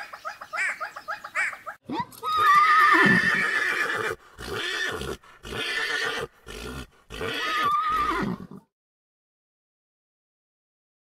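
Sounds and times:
horse whinnying: 1.9 - 8.7.

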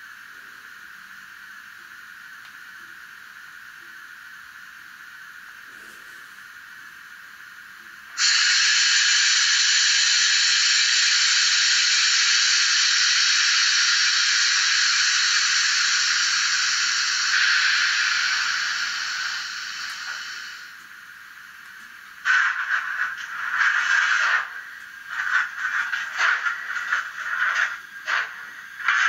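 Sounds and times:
model locomotive steam hiss: 8.1 - 21.5, 22.1 - 29.0.

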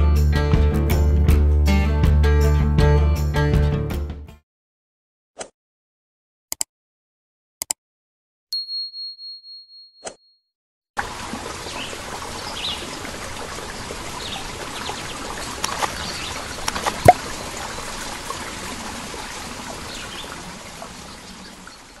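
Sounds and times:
water trickling: 11.0 - 22.0
water plop: 14.2 - 18.7
bird chirps: 15.8 - 17.2.

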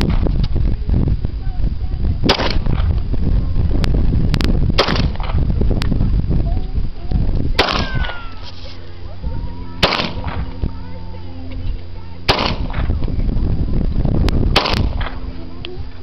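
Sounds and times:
pistol shots echoing: 7.6 - 8.2, 9.8 - 10.4, 12.3 - 12.8.

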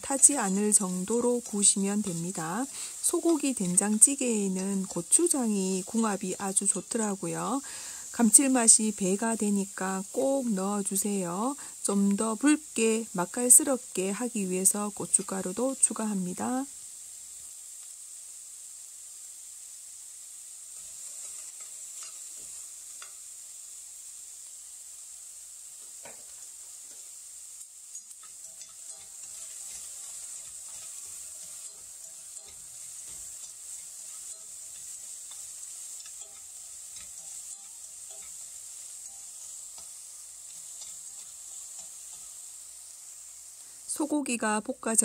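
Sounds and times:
beef sizzling in a pot: 0.0 - 45.0
utensil scraping and tapping pot: 20.8 - 23.2, 27.9 - 42.4.

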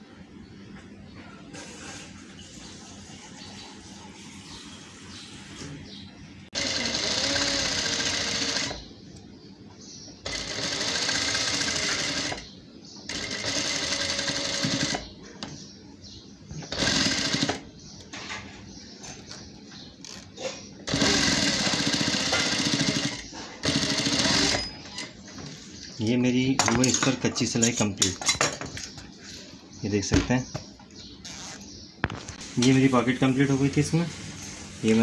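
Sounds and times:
electric sewing machine stitching: 6.6 - 8.9, 10.2 - 12.5, 13.1 - 15.0, 16.7 - 17.6, 20.9 - 24.8.

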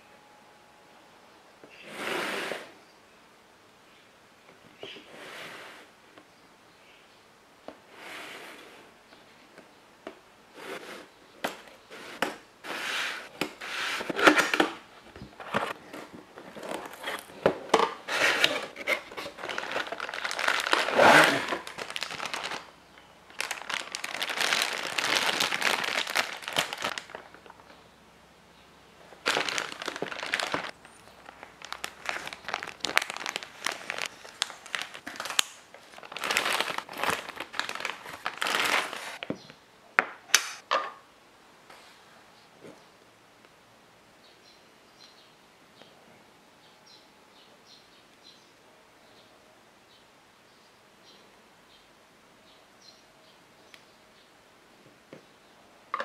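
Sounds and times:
plastic bags crinkling: 13.2 - 27.8, 29.1 - 39.3.

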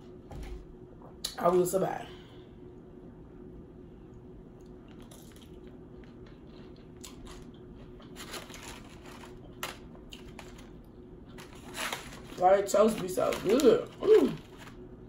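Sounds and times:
crunchy chewing: 4.6 - 12.4.

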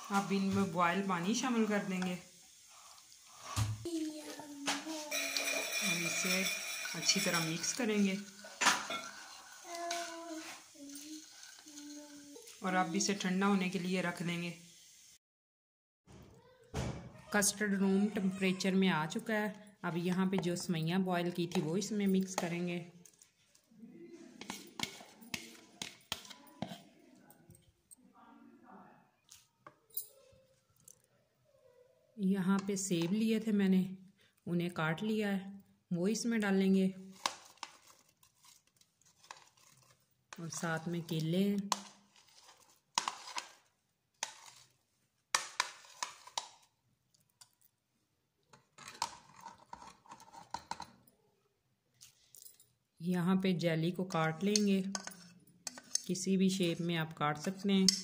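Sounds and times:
spoon scraping and clinking in pot: 5.0 - 12.6, 24.4 - 26.9, 37.2 - 44.7, 45.4 - 46.7, 48.5 - 51.0, 54.3 - 56.2, 57.4 - 58.0
utensils knocking on steel pot: 5.1 - 7.8, 54.5 - 56.1
spoon scraping a plate: 5.1 - 12.6, 24.3 - 27.0, 41.7 - 44.7, 48.8 - 50.9, 54.5 - 56.1.

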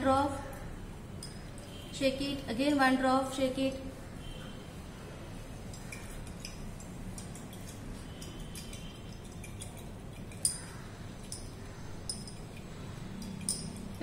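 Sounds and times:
glassware clinking: 1.2 - 1.8, 5.6 - 14.0.

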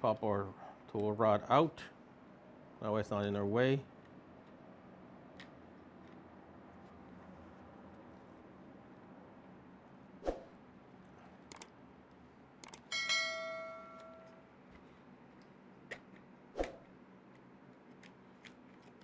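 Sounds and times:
small clicks and knocks of tools: 11.4 - 12.9, 13.9 - 16.3, 17.3 - 19.0
metal tool striking and ringing: 12.9 - 14.4.

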